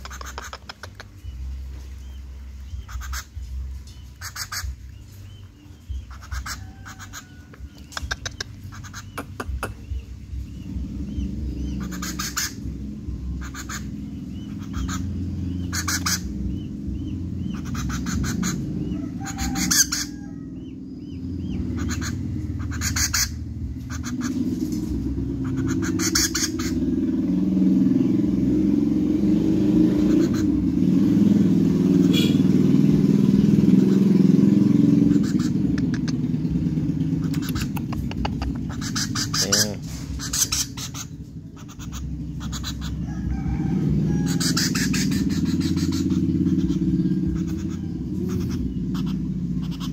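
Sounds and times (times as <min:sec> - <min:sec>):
low rumble: 0:00.0 - 0:19.2
young woodpecker begging calls: 0:00.0 - 0:49.9.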